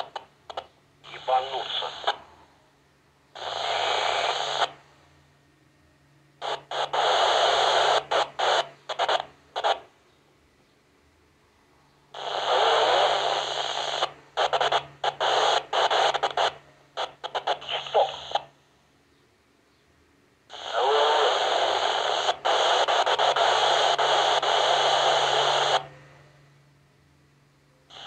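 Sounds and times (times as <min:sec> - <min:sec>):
garbled radio transmissions: 0:00.0 - 0:02.5, 0:03.4 - 0:04.8, 0:06.4 - 0:09.9, 0:12.2 - 0:18.6, 0:20.5 - 0:26.0
radio hiss and distorted signal: 0:00.0 - 0:02.5, 0:03.4 - 0:04.9, 0:06.4 - 0:09.9, 0:12.2 - 0:18.6, 0:20.5 - 0:26.2.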